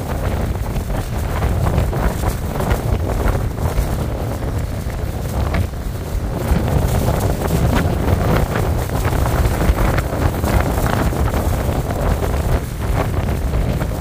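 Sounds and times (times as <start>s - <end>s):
strong wind buffeting microphone: 0.0s - 14.0s.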